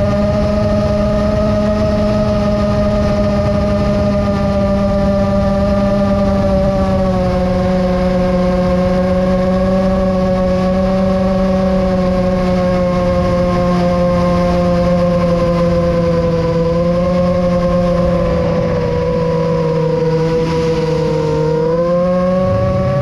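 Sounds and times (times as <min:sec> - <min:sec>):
drone motors whining: 0:00.0 - 0:23.0
wind rushing: 0:16.0 - 0:23.0.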